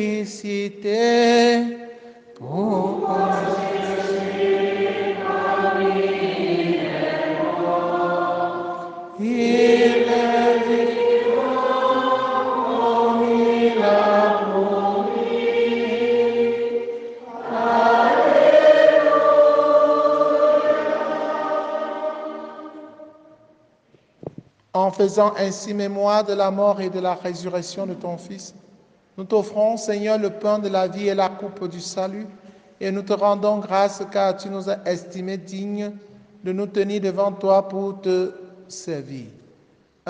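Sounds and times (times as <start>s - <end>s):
choir singing slow chant: 2.4s - 23.5s.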